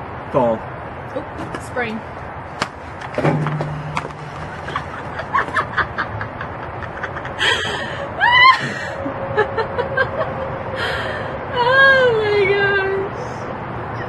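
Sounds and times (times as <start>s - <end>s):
woman laughing hard: 4.6s - 11.0s.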